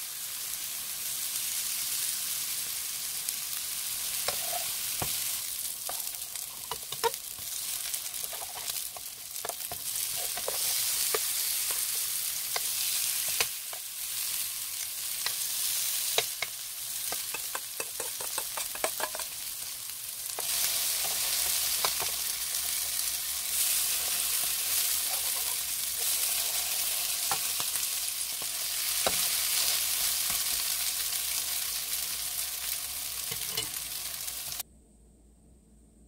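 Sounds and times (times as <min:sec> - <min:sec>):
oil sizzling in a pan: 0:00.0 - 0:34.6
spatula scraping a pan: 0:04.0 - 0:14.4, 0:17.1 - 0:19.4, 0:20.4 - 0:30.4.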